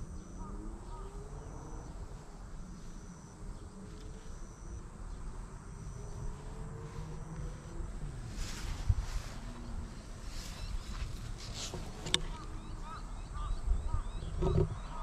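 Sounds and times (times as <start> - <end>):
insect calling: 0.0 - 15.0
low steady rumble: 0.0 - 15.0.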